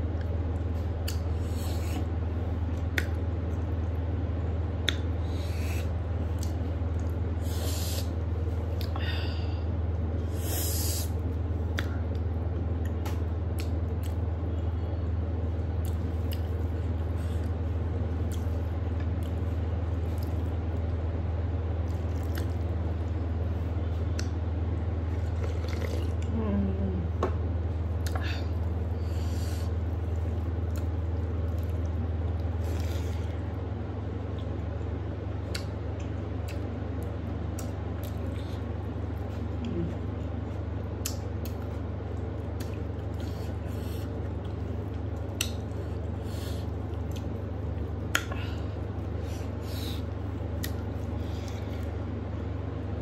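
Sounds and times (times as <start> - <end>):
steady low hum: 0.0 - 53.0
soft mouth clicks: 1.0 - 2.0, 4.8 - 8.1, 11.7 - 12.2, 35.4 - 35.7, 41.0 - 41.6, 45.3 - 45.7, 48.1 - 48.4, 50.6 - 50.8
chewing: 21.8 - 22.8, 30.0 - 33.6, 35.5 - 48.4, 50.0 - 52.0
sipping and gulping: 25.1 - 26.3.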